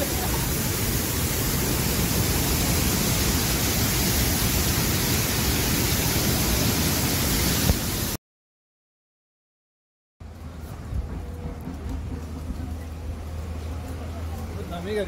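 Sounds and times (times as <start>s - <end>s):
floodwater rushing: 0.0s - 8.2s.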